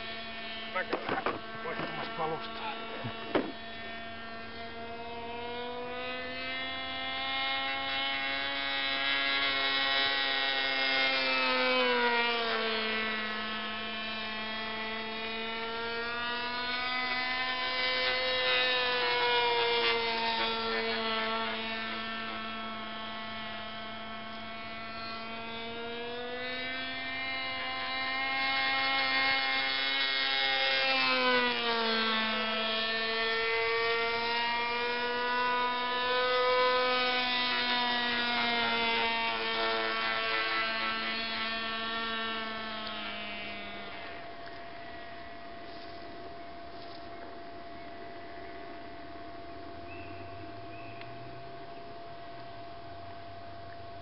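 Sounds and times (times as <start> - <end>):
model airplane engine buzzing: 0.0 - 54.0.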